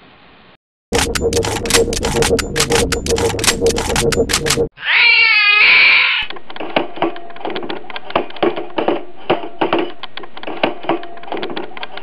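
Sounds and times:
sharp clicks and pops: 0.9s - 4.7s.

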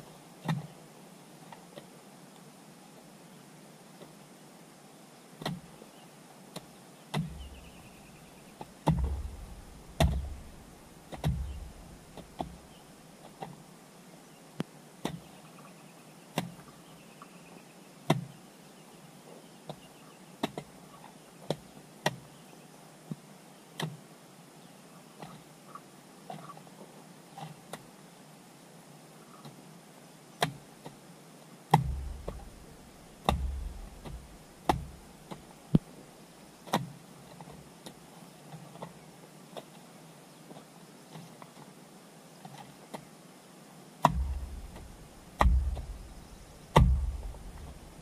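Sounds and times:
hand tool striking: 44.1s - 48.0s.

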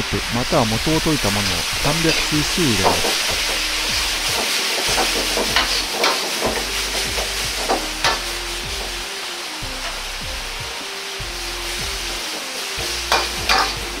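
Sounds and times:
steady sizzling: 0.0s - 14.0s
ladle scraping a wok: 1.6s - 9.1s, 11.6s - 14.0s.

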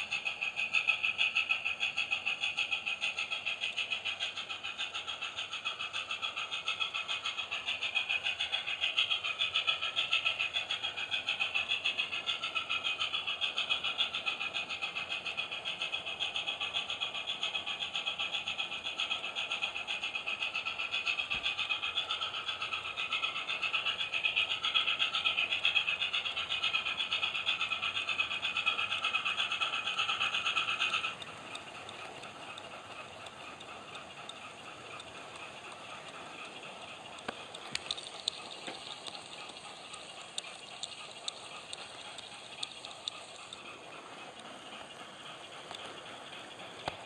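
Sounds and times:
model locomotive exhaust chuffs: 0.0s - 47.0s
light clicks: 30.9s - 43.6s.

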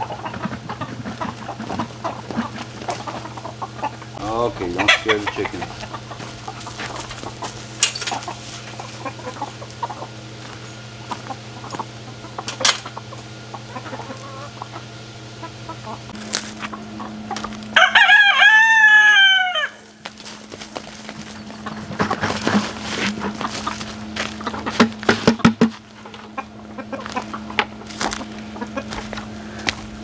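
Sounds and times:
chickens clucking: 0.0s - 30.0s
rooster crowing: 17.7s - 20.0s.

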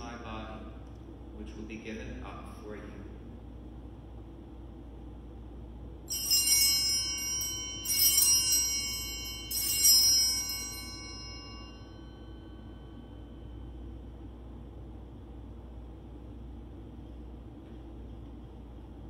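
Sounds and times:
altar bells jangling: 6.1s - 13.4s.

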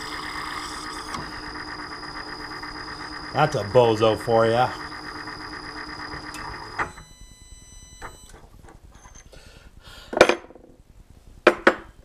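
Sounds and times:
milling machine spindle whine: 0.0s - 8.4s.

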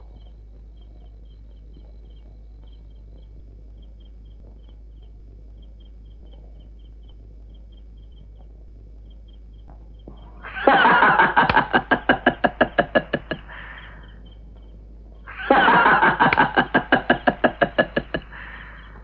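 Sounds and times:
faint insects chirping: 0.0s - 19.0s
man laughing loudly: 10.4s - 14.1s, 15.3s - 19.0s.

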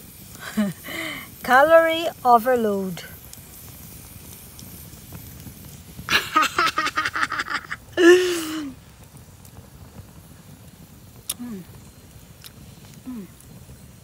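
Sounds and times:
woman laughing heartily: 0.4s - 0.9s, 6.1s - 8.8s.

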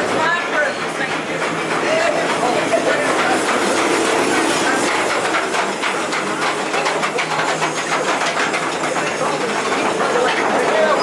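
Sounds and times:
ride cars clattering on track: 0.0s - 11.0s.

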